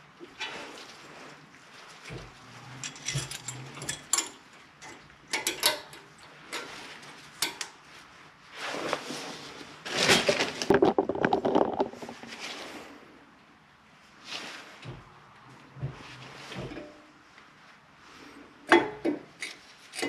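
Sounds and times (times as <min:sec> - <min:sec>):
metal tools clinking and rattling: 0:02.8 - 0:06.7.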